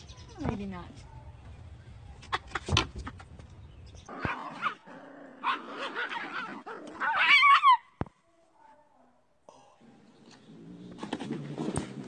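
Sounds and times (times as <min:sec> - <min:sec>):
young pet whining and yipping: 0:05.4 - 0:07.9.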